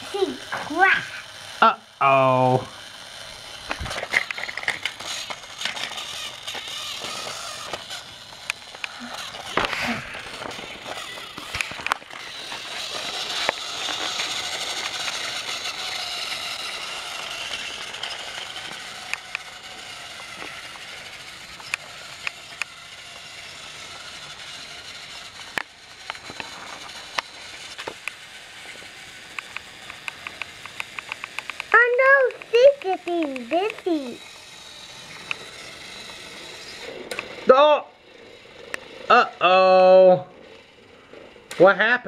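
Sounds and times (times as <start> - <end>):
toy train whirring: 0.0 - 42.0
sharp clicks: 21.5 - 22.8, 29.3 - 34.1, 37.1 - 37.3
quick ticks: 29.3 - 33.9.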